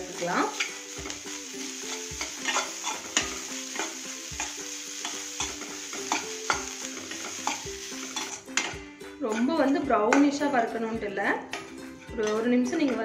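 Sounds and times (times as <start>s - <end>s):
frying sizzle: 0.0s - 8.7s
metal spoon scraping a pan: 0.4s - 10.4s.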